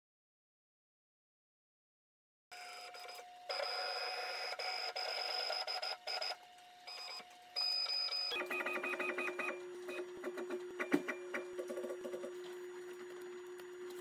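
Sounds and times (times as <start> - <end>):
stepper motors whining: 2.6 - 14.0.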